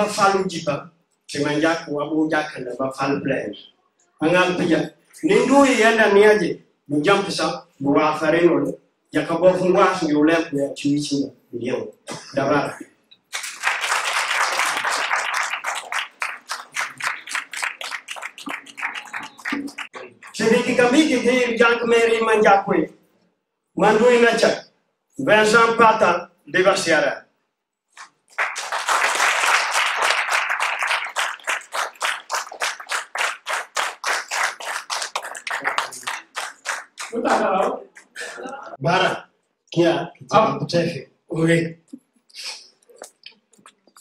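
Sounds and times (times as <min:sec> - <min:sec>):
hands clapping: 0:13.2 - 0:20.6, 0:28.0 - 0:38.4
audience applauding: 0:13.3 - 0:20.6, 0:28.3 - 0:38.4.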